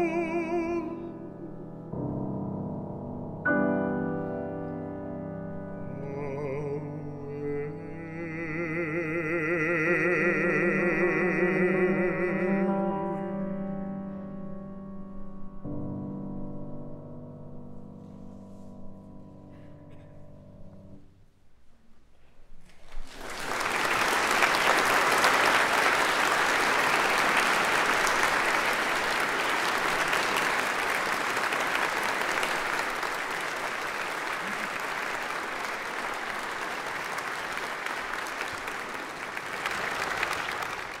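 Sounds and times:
audience applauding: 22.7s - 41.0s.

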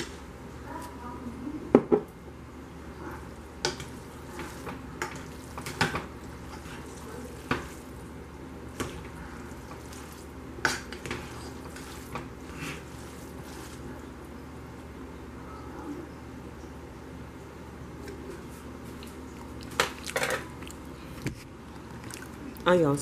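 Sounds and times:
utensil stirring spaghetti in pot: 3.2s - 14.4s.

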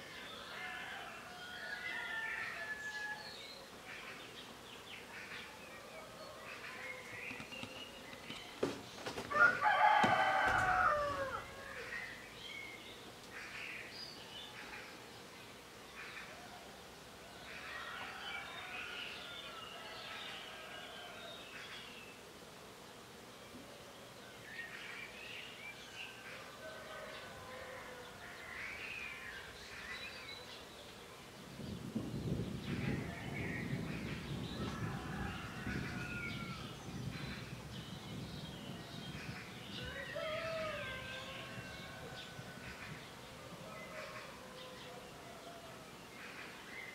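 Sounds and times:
small birds chirping: 0.0s - 16.7s
birds chirping and warbling: 0.0s - 46.9s
faint outdoor hiss: 0.0s - 46.9s
rooster crowing: 0.3s - 3.4s, 9.2s - 12.2s, 17.4s - 21.4s, 26.0s - 28.5s, 34.5s - 36.8s, 39.7s - 42.8s.

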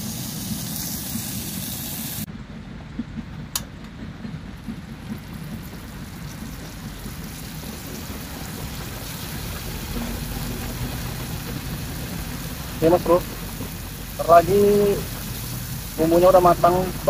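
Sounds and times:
paste sizzling in a pot: 6.9s - 17.0s.

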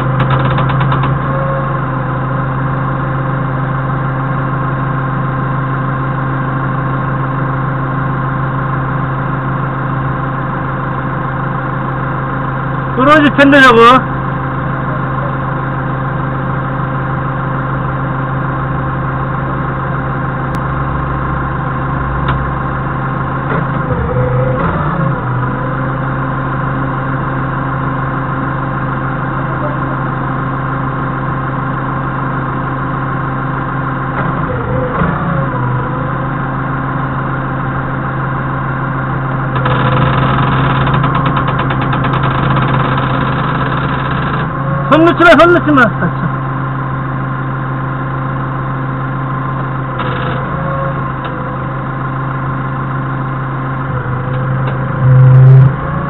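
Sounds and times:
forklift engine idling: 0.0s - 56.0s
engine revving: 20.5s - 26.1s, 53.8s - 56.0s.

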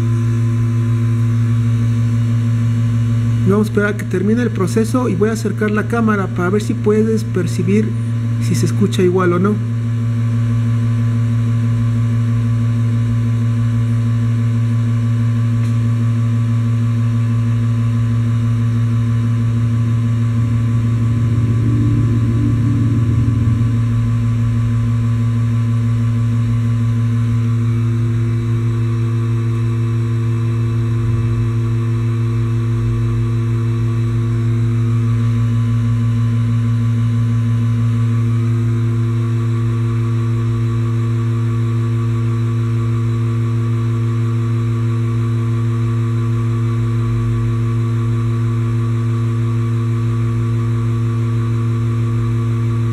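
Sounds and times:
vacuum pump motor humming: 13.3s - 35.2s.

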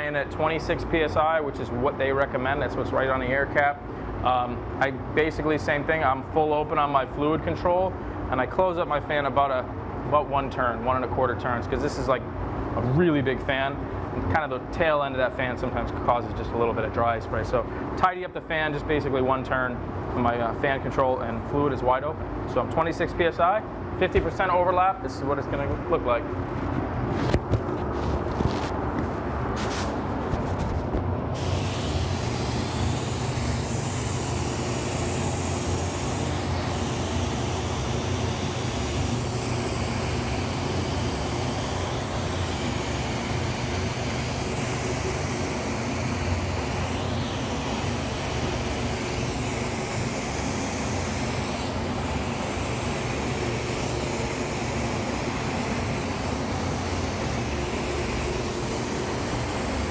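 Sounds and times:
steady low hum: 0.0s - 59.9s
spray gun hissing: 31.4s - 59.9s.

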